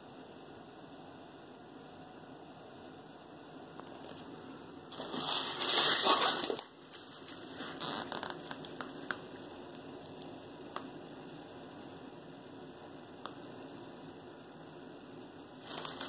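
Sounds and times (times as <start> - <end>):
crinkling rustling handling noise: 4.9 - 10.4, 15.6 - 16.0.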